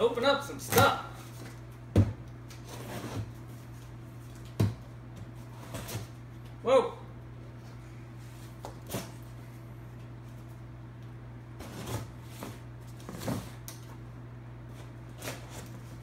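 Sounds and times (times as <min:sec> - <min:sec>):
steady low hum: 0:00.0 - 0:16.0
knife scraping cardboard: 0:02.6 - 0:03.5, 0:05.4 - 0:06.1, 0:11.6 - 0:13.5, 0:14.8 - 0:16.0.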